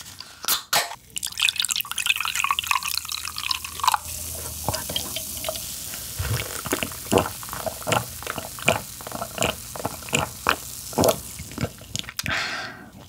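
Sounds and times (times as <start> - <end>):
wet squelches and clicks: 6.2 - 12.4.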